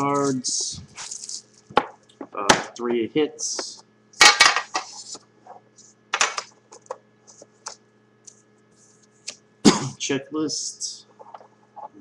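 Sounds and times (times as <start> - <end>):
hands rustling card box: 0.0 - 1.6.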